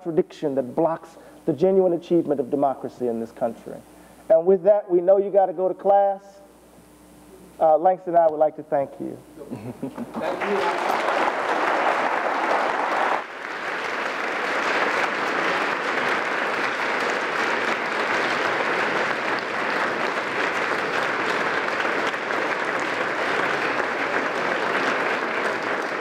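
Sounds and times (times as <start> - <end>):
crowd applauding: 10.0 - 26.0.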